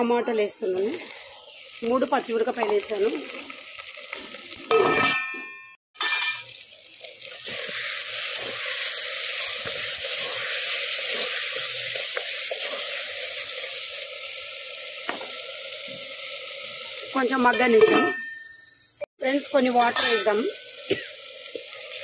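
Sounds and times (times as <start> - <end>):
vegetables frying in oil: 0.6 - 4.7, 6.0 - 22.0
metal clang: 4.7 - 6.4.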